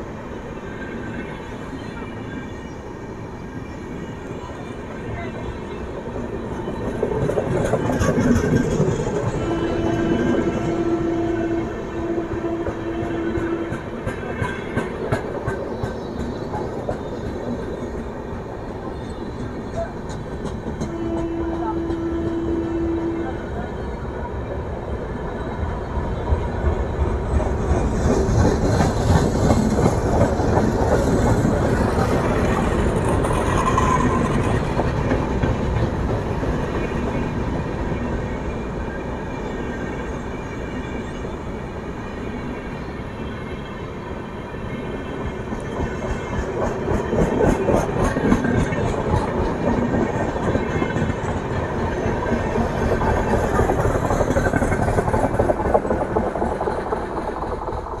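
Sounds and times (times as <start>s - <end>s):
train wheels rumbling on rails: 0.0s - 58.0s
clickety-clack over rail joints: 5.1s - 23.7s, 25.3s - 39.1s, 44.5s - 58.0s.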